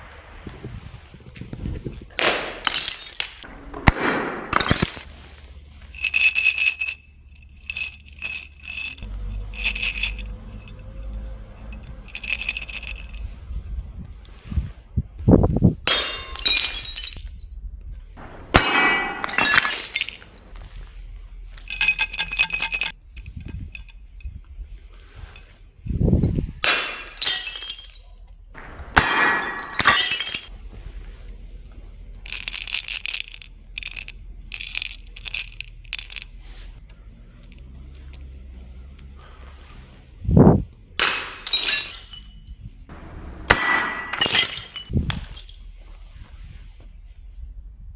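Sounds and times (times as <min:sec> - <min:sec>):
glass bottles smashing against wall: 0:02.6 - 0:03.5, 0:04.5 - 0:05.1, 0:15.9 - 0:17.4, 0:18.5 - 0:20.5, 0:26.6 - 0:28.2, 0:29.0 - 0:30.5, 0:41.0 - 0:42.7, 0:43.5 - 0:45.7
glass tinkling: 0:06.0 - 0:13.3, 0:16.1 - 0:17.4, 0:19.0 - 0:20.3, 0:21.7 - 0:24.4, 0:26.7 - 0:28.3, 0:29.2 - 0:30.5, 0:32.3 - 0:36.3, 0:41.0 - 0:42.8, 0:43.8 - 0:45.6
quick glassy clinks: 0:06.0 - 0:13.4, 0:21.7 - 0:24.4, 0:32.3 - 0:38.4, 0:41.0 - 0:42.9, 0:43.5 - 0:45.7.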